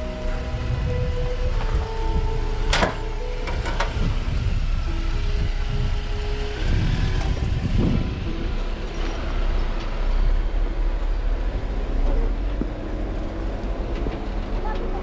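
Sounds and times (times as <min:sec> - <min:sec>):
engine and drivetrain rumble: 0:00.0 - 0:15.0.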